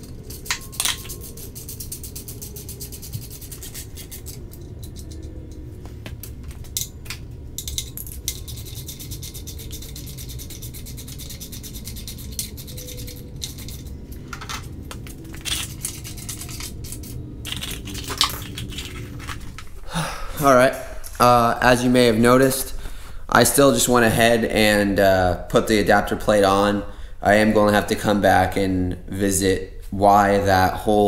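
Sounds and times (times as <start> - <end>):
metal clicks and clinks: 4.1 - 5.7, 6.5 - 9.0, 12.3 - 19.6
hand ratchet clicking: 7.6 - 13.9.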